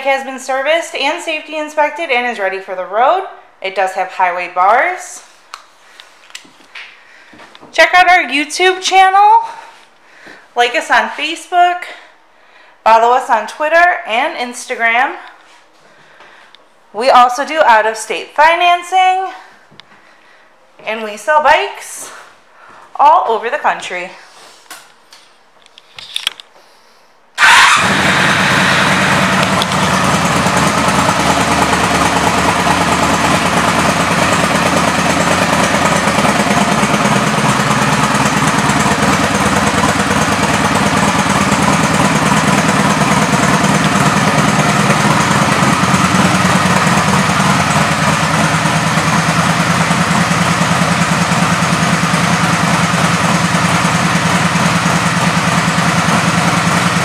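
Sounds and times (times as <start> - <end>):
motorcycle engine idling: 27.4 - 57.0.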